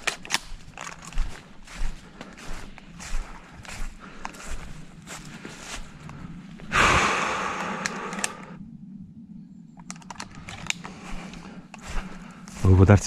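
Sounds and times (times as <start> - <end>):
footsteps through brush: 0.0 - 6.7, 10.8 - 13.0.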